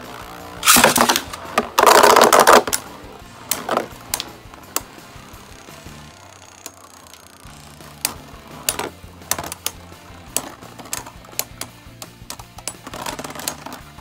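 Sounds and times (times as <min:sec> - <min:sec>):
background music: 0:00.0 - 0:14.0
spinning tops clacking together: 0:00.6 - 0:14.0.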